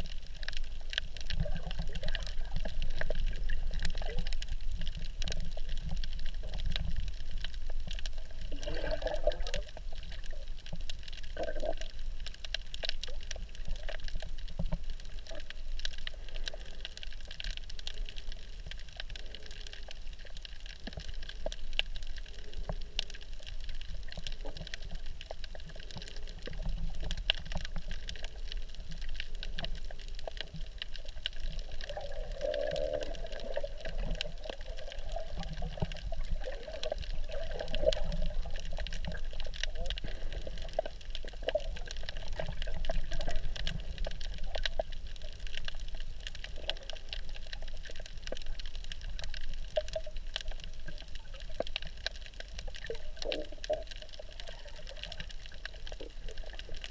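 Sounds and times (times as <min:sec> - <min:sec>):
low underwater gurgles: 0:00.0 - 0:56.9
muffled underwater wash: 0:00.0 - 0:56.9
underwater crackling ticks: 0:00.0 - 0:56.9.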